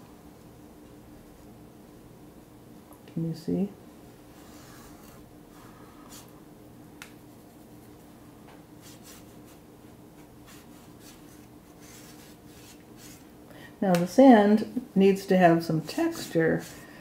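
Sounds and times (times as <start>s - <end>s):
low steady hum: 0.0s - 17.0s
paintbrush strokes on paper: 8.8s - 9.6s, 10.2s - 13.3s.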